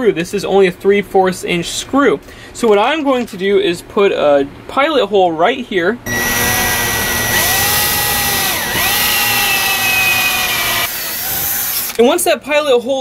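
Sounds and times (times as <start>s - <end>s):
cordless drill whining: 6.1s - 12.0s.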